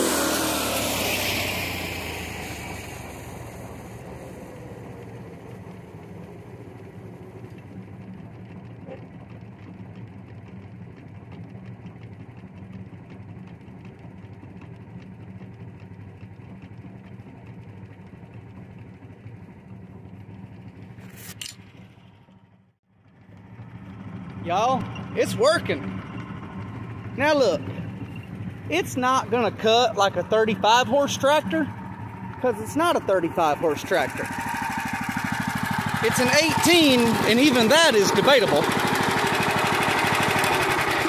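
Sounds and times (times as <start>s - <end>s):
tractor engine running under load: 0.0s - 41.0s
rotary cutter cutting grass: 32.3s - 41.0s.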